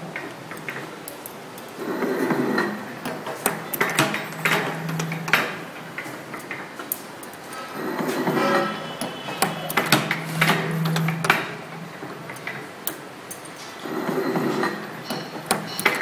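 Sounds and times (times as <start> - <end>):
machine whirring: 0.0 - 16.0
metallic clicks and clacks: 0.0 - 16.0
low machine hum: 1.7 - 6.8, 7.5 - 12.5.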